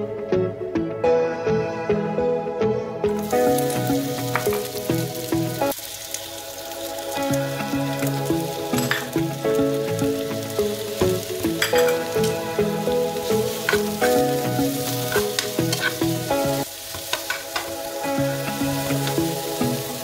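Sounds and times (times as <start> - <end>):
background music: 0.0 - 20.0
onion and garlic sizzling in a pan: 3.1 - 20.0
metal spoon scraping a pan: 13.6 - 16.1.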